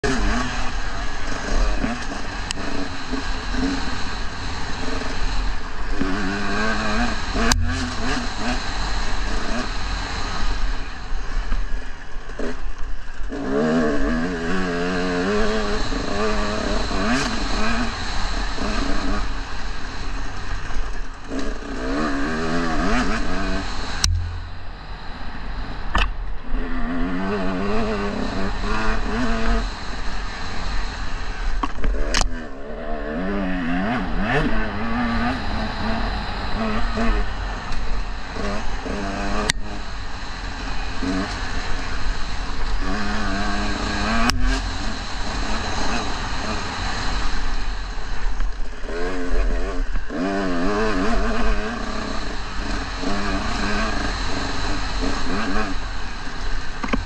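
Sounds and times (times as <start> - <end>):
dirt bike engine revving: 0.0 - 11.4, 12.3 - 25.8, 26.5 - 57.0
sharp knocks: 24.1 - 24.7.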